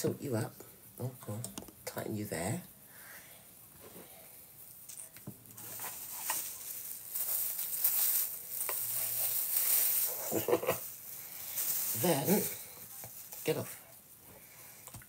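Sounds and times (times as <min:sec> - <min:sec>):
plastic bag crinkling: 0:05.5 - 0:13.8.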